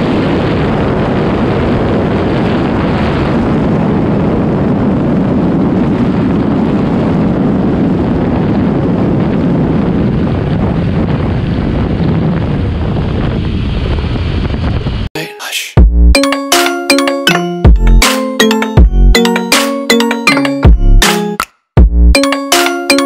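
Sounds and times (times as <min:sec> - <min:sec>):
wind rush on camera: 0:00.0 - 0:15.1
chiming music: 0:16.2 - 0:21.5, 0:22.2 - 0:23.0.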